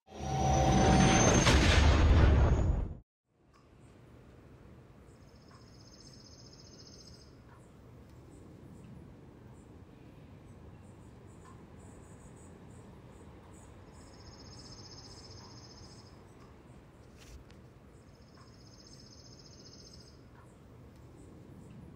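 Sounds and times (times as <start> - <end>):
faint high chirps: 5.1 - 7.7, 10.5 - 16.5, 18.0 - 20.6.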